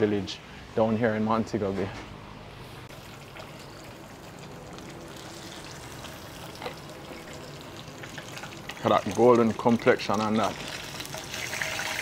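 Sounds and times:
oil crackles: 2.9s - 12.0s
fish sizzling in hot oil: 3.0s - 12.0s.

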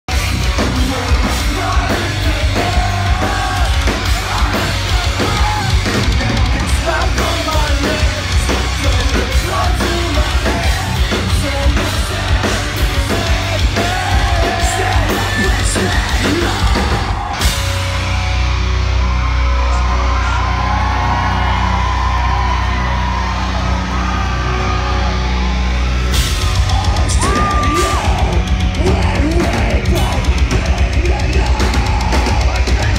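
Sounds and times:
fast pounding drums: 0.1s - 18.4s, 26.1s - 32.9s
metal band playing live: 0.1s - 32.9s
person singing: 0.4s - 17.4s, 26.6s - 32.9s.

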